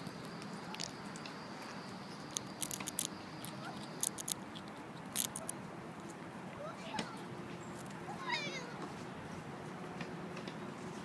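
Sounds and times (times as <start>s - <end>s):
clicks and scratches on microphone: 2.3s - 6.2s.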